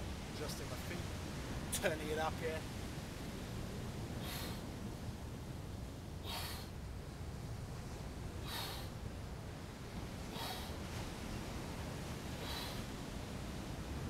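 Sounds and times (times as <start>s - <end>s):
steady low rumble: 0.0s - 14.0s
man breathing out sharply: 4.2s - 4.6s, 8.4s - 9.0s, 12.4s - 12.9s.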